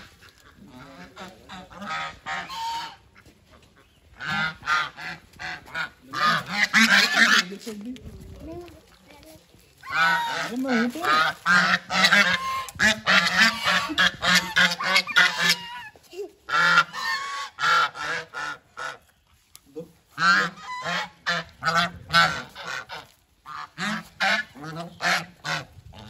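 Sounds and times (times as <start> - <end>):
geese honking: 0.0 - 7.8, 9.8 - 19.3, 20.1 - 26.0.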